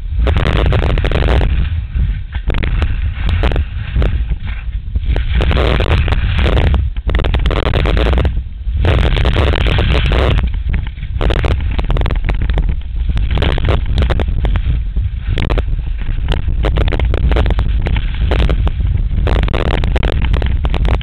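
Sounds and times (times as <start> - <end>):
wind buffeting microphone: 0.0 - 21.0
skis hissing and scraping on snow: 0.4 - 6.8.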